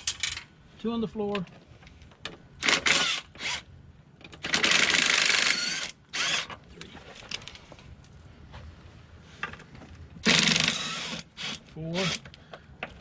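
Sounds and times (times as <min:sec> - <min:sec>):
cordless electric ratchet whirring: 0:04.5 - 0:06.5, 0:10.2 - 0:12.2.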